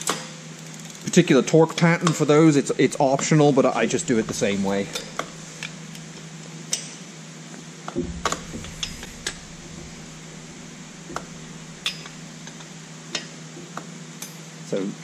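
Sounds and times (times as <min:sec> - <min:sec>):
steady low hum: 0:02.6 - 0:13.7.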